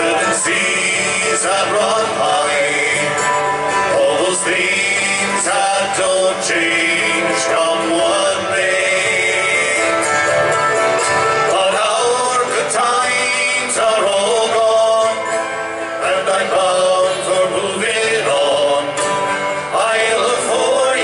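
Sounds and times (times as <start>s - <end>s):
acoustic guitar: 0.0s - 21.0s
men singing: 0.0s - 21.0s
strummed mandolin: 0.0s - 21.0s.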